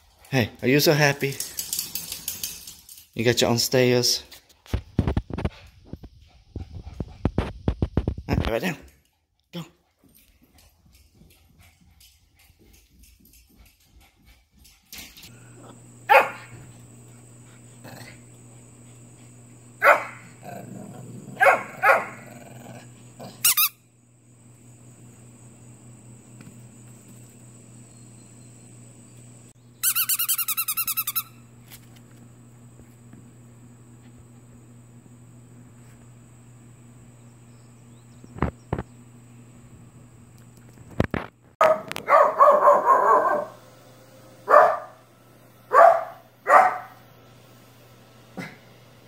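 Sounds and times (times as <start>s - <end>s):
faint low hum: 0.0s - 49.0s
small dog barking: 16.0s - 16.7s, 19.8s - 20.4s, 21.4s - 22.2s, 41.6s - 43.6s, 44.4s - 45.0s, 45.7s - 47.0s.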